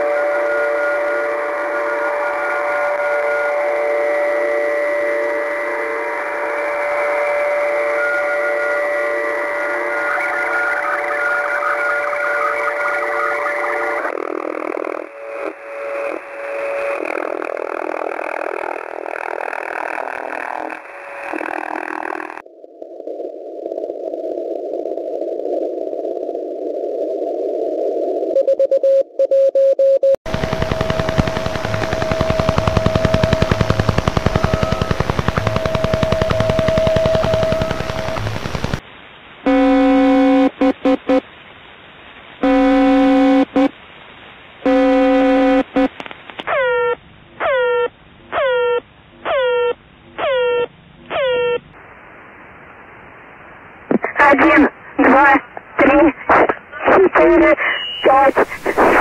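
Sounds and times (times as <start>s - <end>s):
radio noise: 9.2s - 22.4s, 30.3s - 38.8s, 39.5s - 41.2s, 42.4s - 43.7s, 44.6s - 46.5s, 53.8s - 59.0s
pitched tone blasts: 30.3s - 38.8s, 39.5s - 41.2s, 42.4s - 43.7s
horn-like blasts: 39.5s - 41.2s, 42.4s - 43.7s, 44.7s - 45.8s
short radio beeps: 57.1s - 59.0s.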